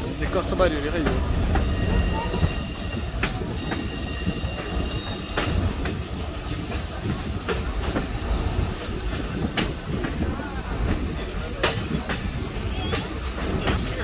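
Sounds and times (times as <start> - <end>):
train rumbling on track: 0.0 - 14.0
thin high wheel squeal: 1.6 - 5.6.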